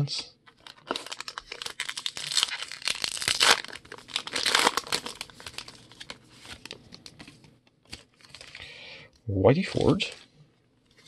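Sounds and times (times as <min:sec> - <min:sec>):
card pack wrapper crinkling: 0:00.4 - 0:08.6.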